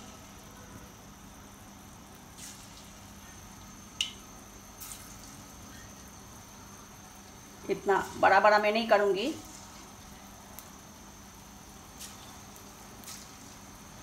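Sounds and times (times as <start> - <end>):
batter sizzling in hot oil: 0.0 - 14.0
oil popping and splatting: 4.8 - 5.4.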